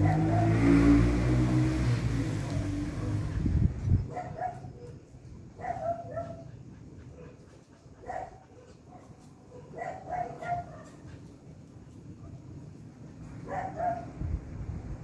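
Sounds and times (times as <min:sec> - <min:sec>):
low vehicle rumble: 0:00.0 - 0:04.2.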